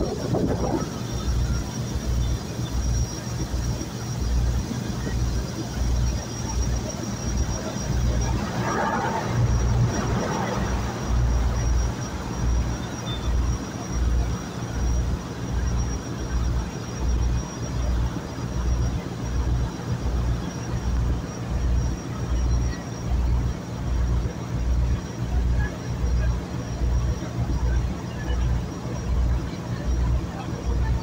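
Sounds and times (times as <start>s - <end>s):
thin high whine: 0.0s - 24.1s.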